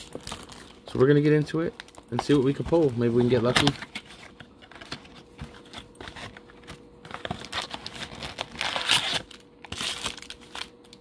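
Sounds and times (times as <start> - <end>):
cellophane crinkling: 0.0 - 11.0
cardboard rustling: 1.9 - 10.7.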